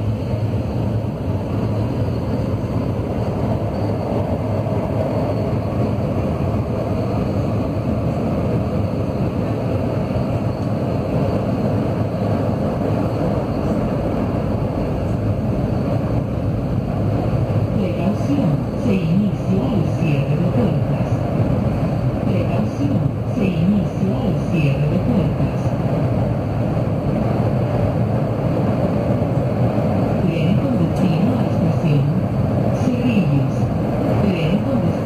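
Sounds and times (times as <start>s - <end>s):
train wheels on rail: 0.0s - 35.0s.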